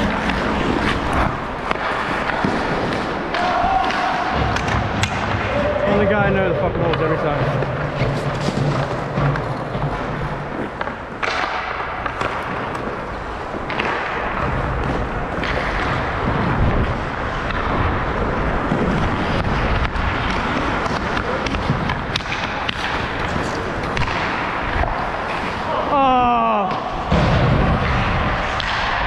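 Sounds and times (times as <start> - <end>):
sticks clicking on puck: 0.0 - 25.8, 27.8 - 29.0
ice skate blades scraping: 0.0 - 26.0
wind buffeting microphone: 16.0 - 20.2.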